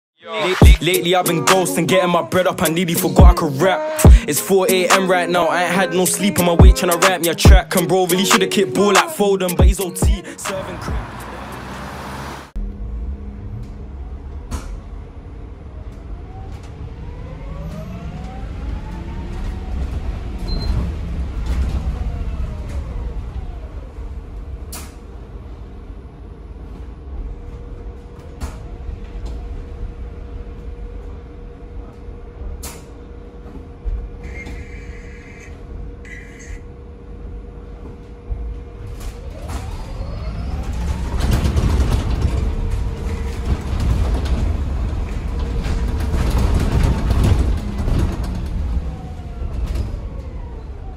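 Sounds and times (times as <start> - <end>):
bus road rumble: 0.2 - 50.9
body knocks and rattles: 41.2 - 48.8.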